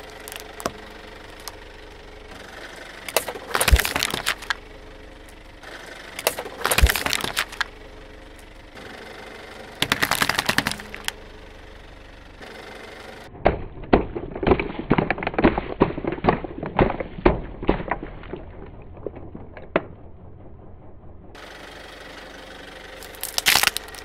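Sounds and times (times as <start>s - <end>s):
plastic bottles bursting under tyre: 0.0s - 8.7s, 9.8s - 11.2s, 13.4s - 20.1s, 23.0s - 24.0s.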